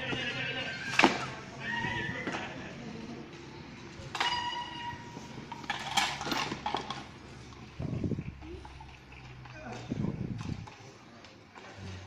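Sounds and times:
metallic clink of mallets: 4.1 - 5.0.

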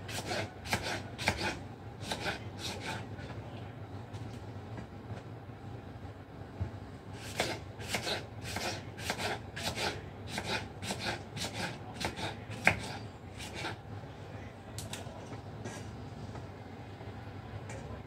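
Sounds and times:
knife cutting on wooden board: 0.1 - 3.0, 7.2 - 13.8.

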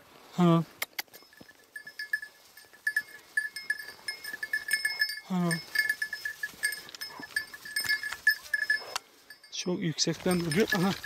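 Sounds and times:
small bell tinkling: 1.1 - 11.0
person calling: 4.7 - 6.0.

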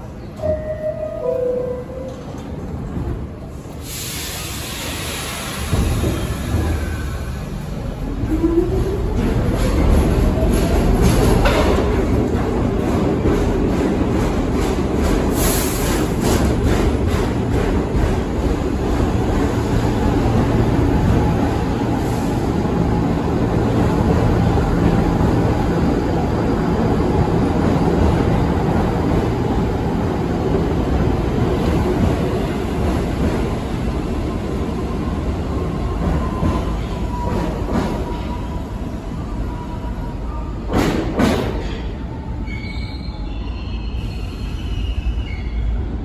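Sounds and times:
subway train rumbling: 0.0 - 46.0
high wheel squeal: 42.4 - 45.7.

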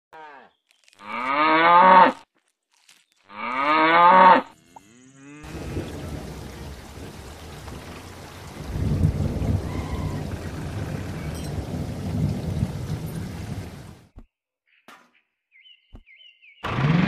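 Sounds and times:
cow mooing: 1.0 - 2.2, 3.3 - 6.0
steady rumbling hiss: 5.5 - 14.0.

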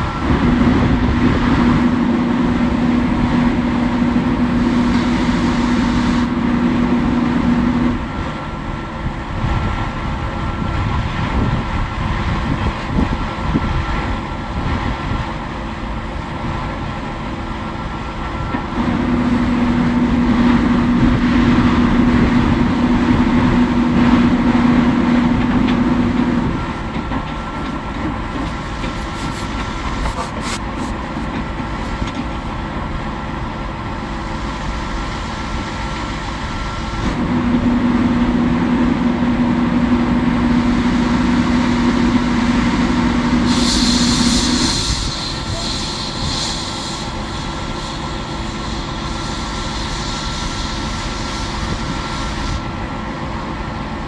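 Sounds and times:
heavy engine rumbling: 0.0 - 54.0
steady hum: 18.8 - 35.4.

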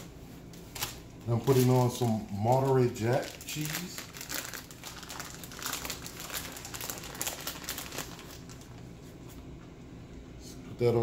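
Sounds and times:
plastic bag crinkling: 0.7 - 8.9.

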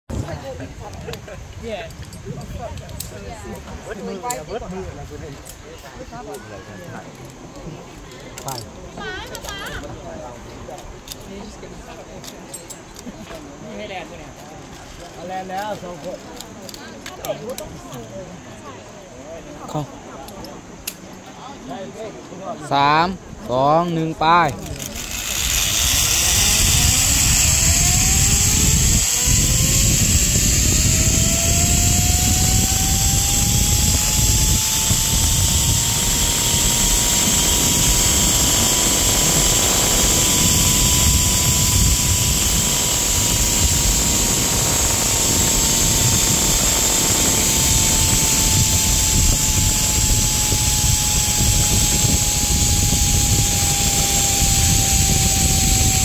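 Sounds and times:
wind on microphone: 0.1 - 3.9, 25.2 - 56.0
zipline pulleys whirring: 0.4 - 18.2, 23.5 - 56.0.

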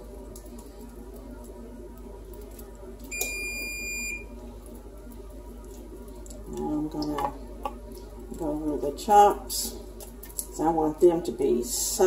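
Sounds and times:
oven electronic beep: 3.1 - 4.4.

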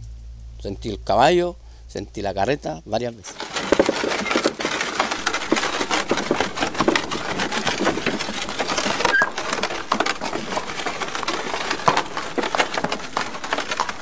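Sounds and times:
wooden knocks and rattles: 3.3 - 14.0.

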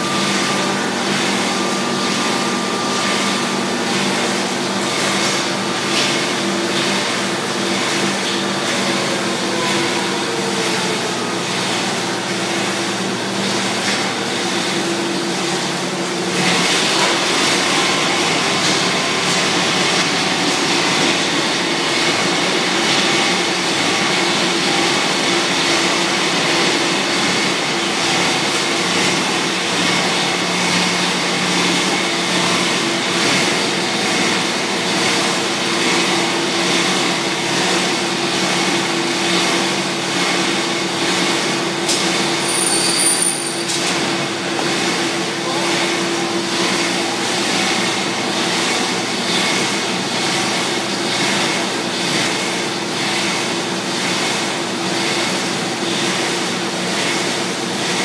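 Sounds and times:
motor hum: 0.0 - 38.8
extrusion machine noise: 0.0 - 58.0.

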